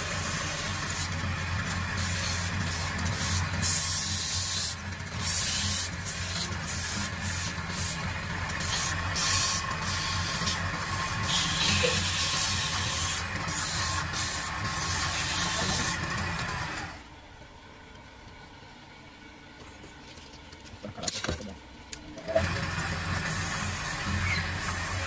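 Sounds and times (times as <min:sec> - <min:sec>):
tool scraping spinning wood: 0:00.0 - 0:17.0, 0:22.2 - 0:25.0
wood lathe humming: 0:00.0 - 0:17.1, 0:22.2 - 0:25.0.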